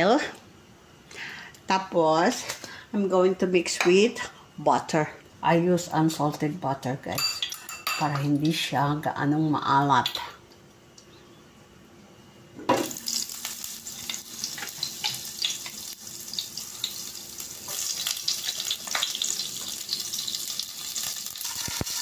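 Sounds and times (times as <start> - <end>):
butter sizzling in frying pan: 12.8 - 22.0.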